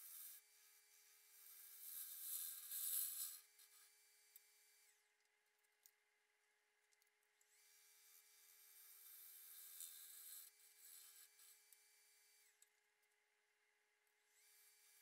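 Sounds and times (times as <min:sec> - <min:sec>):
gouge cutting wood hiss: 0:01.4 - 0:03.9, 0:08.8 - 0:11.6.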